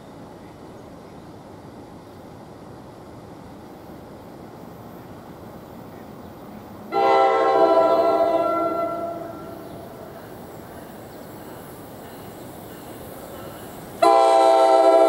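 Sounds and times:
low background noise: 0.0s - 15.0s
train air horn blast: 6.9s - 10.1s, 14.0s - 15.0s.

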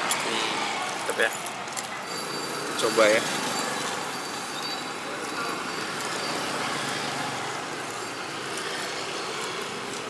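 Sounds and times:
roadside traffic hum: 0.0s - 10.0s.

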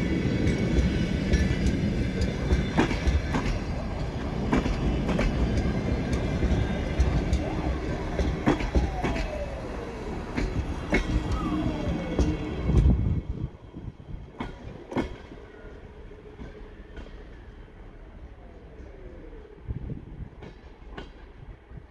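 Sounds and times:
train coaches rumbling past: 0.0s - 21.9s
wheel clicks over rail joints: 0.4s - 9.7s.

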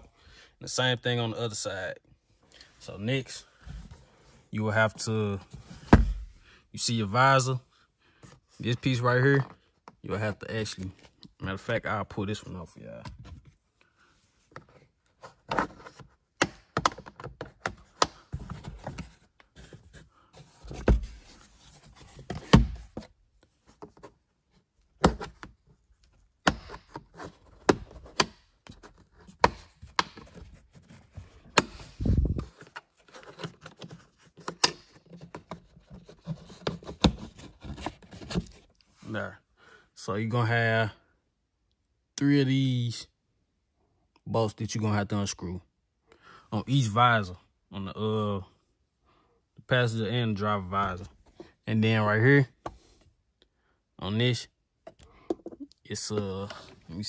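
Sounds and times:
plastic clicking and scraping: 32.4s - 38.8s.

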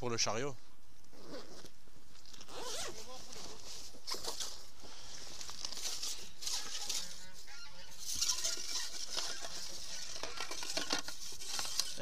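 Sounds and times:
nylon bags rustling: 2.2s - 12.0s
faint honking calls: 6.4s - 8.5s.

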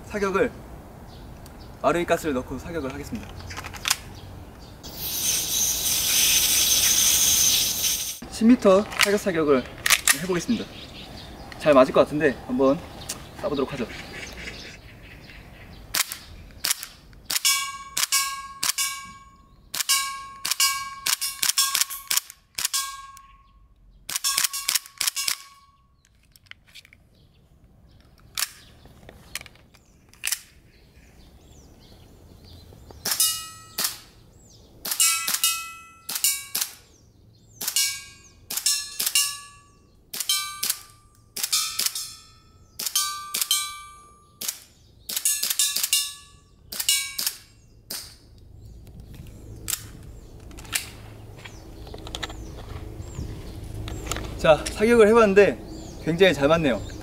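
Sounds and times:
short metallic ring: 17.4s - 22.1s, 22.7s - 23.6s, 24.2s - 25.9s, 33.1s - 34.0s, 35.0s - 36.7s, 37.7s - 44.4s, 45.2s - 47.6s.

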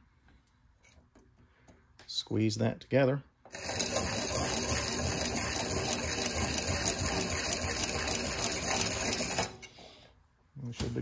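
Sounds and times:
abrasive wheel grinding metal ring: 3.5s - 9.6s.

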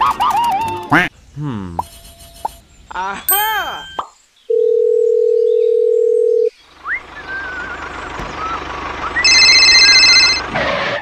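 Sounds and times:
dial tone: 4.5s - 6.5s, 9.3s - 10.4s
wavering whistles: 6.8s - 9.3s
small engine running: 7.0s - 11.0s
shrill electronic ringing: 9.2s - 10.4s.

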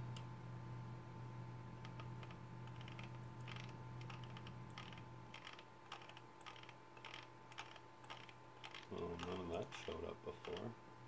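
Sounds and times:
low electrical hum: 0.0s - 11.0s
typing on computer keyboard: 1.8s - 10.7s.

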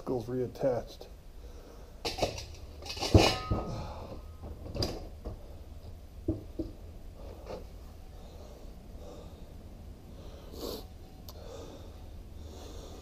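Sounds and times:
metal clang: 2.1s - 5.1s
metal knocks and clunks: 2.1s - 5.5s, 6.2s - 6.8s.

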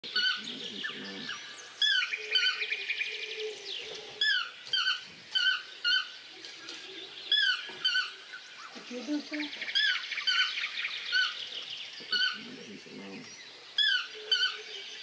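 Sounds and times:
birds chirping and trilling: 0.0s - 15.0s
toucan calling: 0.1s - 2.8s, 12.0s - 12.6s, 13.8s - 14.8s.

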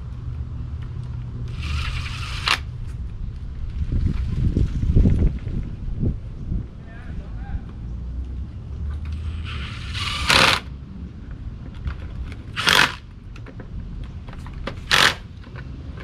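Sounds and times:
cordless drill bursts: 1.5s - 2.7s, 9.2s - 10.7s, 12.6s - 13.0s, 14.9s - 15.2s.

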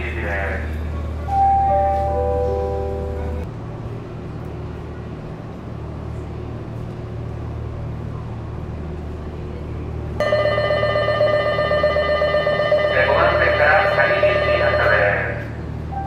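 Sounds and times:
low hum of stationary trains: 0.0s - 16.0s
electric departure bell ringing: 1.3s - 3.4s, 10.2s - 15.4s.

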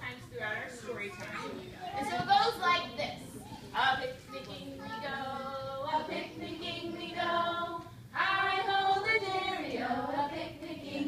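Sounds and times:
group singing children's song: 3.7s - 11.0s.

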